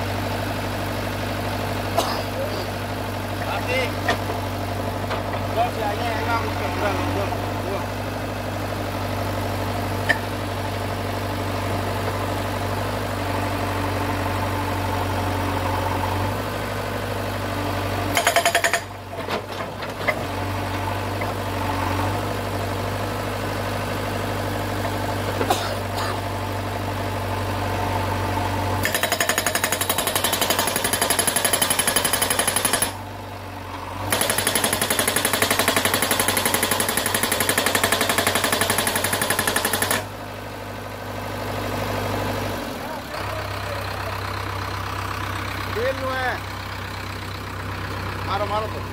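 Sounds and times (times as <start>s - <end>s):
backhoe engine running: 0.0s - 48.9s
hydraulic breaker hammering rock: 18.1s - 19.0s, 28.8s - 33.0s, 34.1s - 40.1s.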